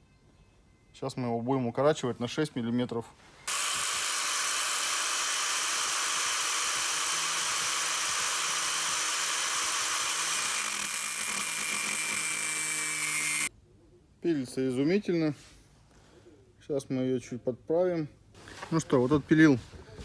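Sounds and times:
angle grinder cutting metal: 0:03.5 - 0:13.5.

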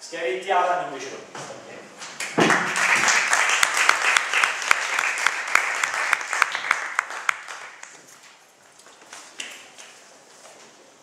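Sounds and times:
small audience applauding: 0:02.2 - 0:08.1.

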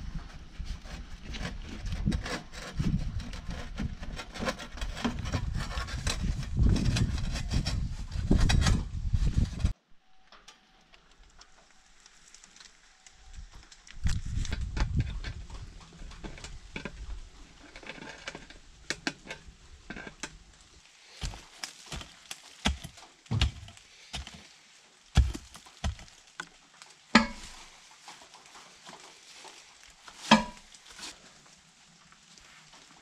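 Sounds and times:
mattock chopping into soil: 0:21.2 - 0:24.5, 0:25.2 - 0:26.2
metal pipe sections clinking: 0:27.2 - 0:27.6, 0:30.2 - 0:30.7.

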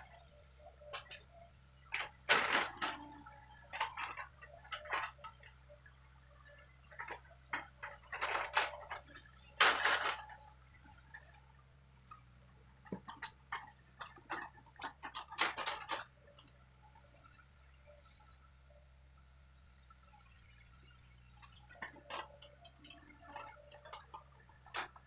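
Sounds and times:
excavator engine hum: 0:00.0 - 0:25.0.

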